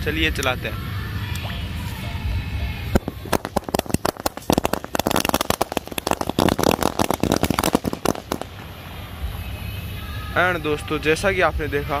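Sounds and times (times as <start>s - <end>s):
firecracker string bangs: 3.0s - 8.8s.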